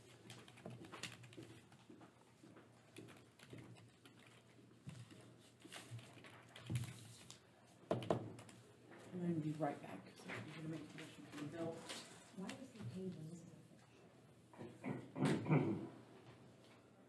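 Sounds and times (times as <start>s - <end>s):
computer keyboard typing: 0.0s - 8.7s.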